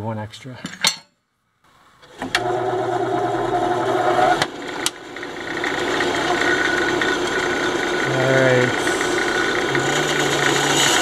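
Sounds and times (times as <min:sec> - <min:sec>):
band saw running: 0:02.3 - 0:11.0
saw blade cutting plastic: 0:08.8 - 0:11.0.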